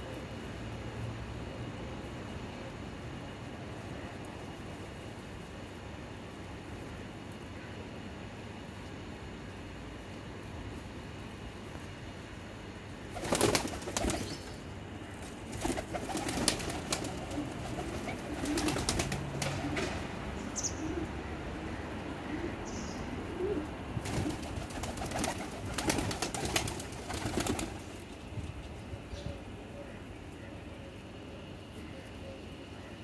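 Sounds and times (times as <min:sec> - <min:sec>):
wings flapping: 0:13.1 - 0:14.4, 0:15.2 - 0:20.1, 0:24.0 - 0:28.3
pigeons cooing: 0:15.7 - 0:27.9.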